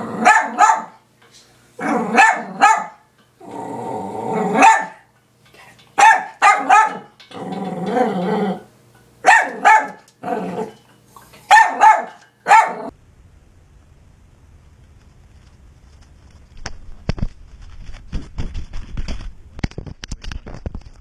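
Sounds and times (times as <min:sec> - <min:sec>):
dog growling: 0:00.0 - 0:00.3, 0:01.8 - 0:02.6, 0:03.4 - 0:04.6, 0:06.9 - 0:08.7, 0:10.2 - 0:10.8
dog barking: 0:00.2 - 0:01.0, 0:01.8 - 0:03.0, 0:04.5 - 0:05.1, 0:06.0 - 0:07.1, 0:09.2 - 0:10.1, 0:11.5 - 0:12.9.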